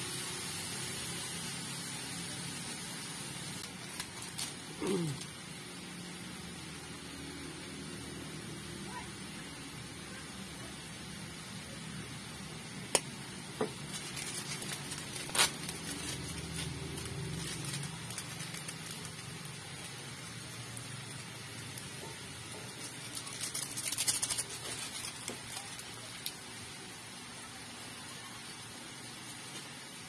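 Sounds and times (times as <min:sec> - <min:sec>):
chicken sizzling in a pan: 0:00.0 - 0:30.0
seasoning shaker clicks: 0:21.7 - 0:26.4.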